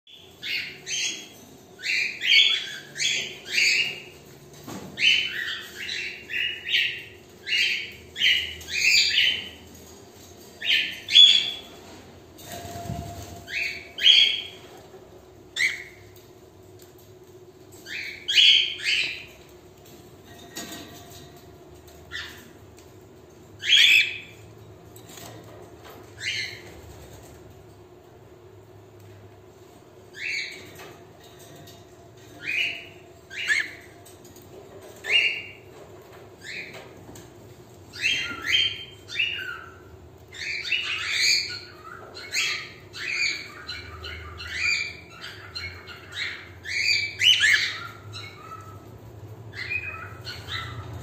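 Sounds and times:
cockatiels chirping: 0:00.1 - 0:04.3, 0:05.0 - 0:09.6, 0:12.4 - 0:14.8, 0:15.5 - 0:16.2, 0:17.8 - 0:19.5, 0:22.1 - 0:22.5, 0:23.6 - 0:24.4, 0:30.1 - 0:30.9, 0:32.4 - 0:33.9, 0:35.0 - 0:35.8, 0:37.9 - 0:48.9, 0:49.5 - 0:51.0.

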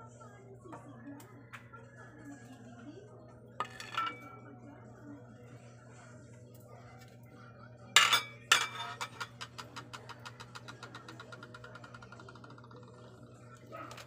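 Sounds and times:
metal cookware clanks: 0:03.6 - 0:04.4, 0:08.0 - 0:09.8.

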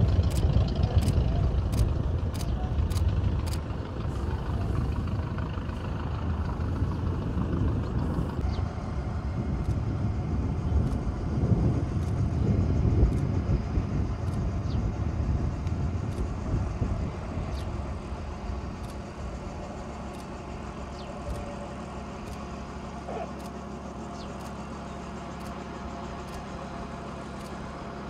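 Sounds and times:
wind noise: 0:00.0 - 0:21.5
biplane engine low rumble: 0:00.0 - 0:28.0
sharp clicks: 0:00.2 - 0:03.7.

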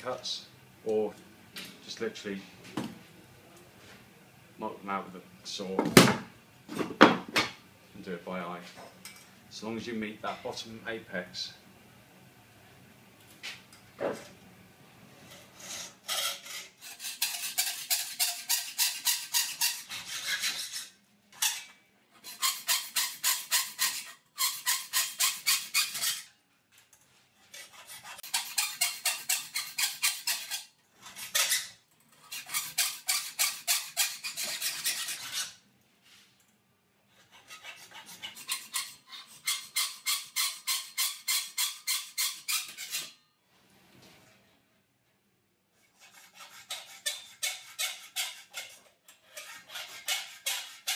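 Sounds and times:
hacksaw cutting metal: 0:15.6 - 0:26.3, 0:27.5 - 0:35.6, 0:37.2 - 0:43.2, 0:45.9 - 0:50.9.

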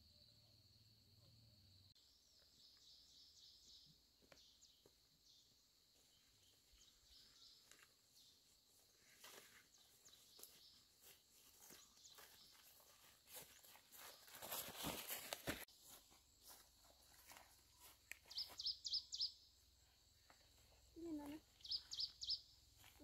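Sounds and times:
rustling in undergrowth: 0:06.4 - 0:18.7
faint footsteps: 0:06.8 - 0:18.8
high chirping: 0:17.8 - 0:19.4, 0:21.3 - 0:22.6.

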